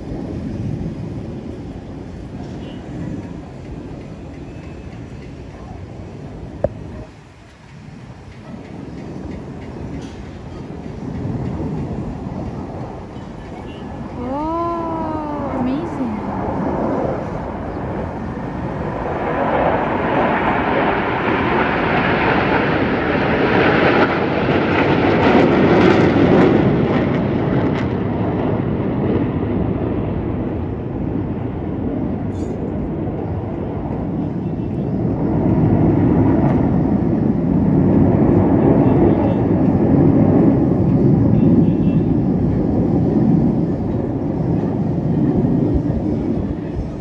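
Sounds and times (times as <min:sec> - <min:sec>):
jets flying past: 0:13.9 - 0:47.0.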